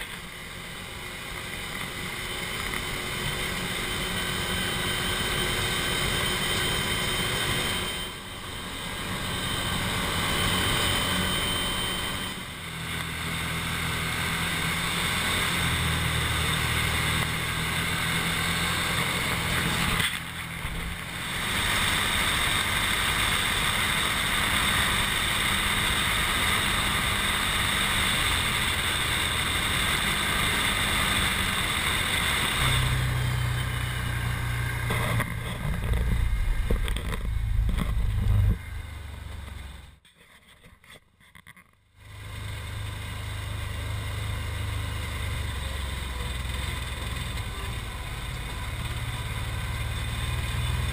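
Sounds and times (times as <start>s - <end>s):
wind and road rush: 0.0s - 40.0s, 42.0s - 50.9s
atv engine droning: 0.0s - 40.1s, 41.5s - 50.9s.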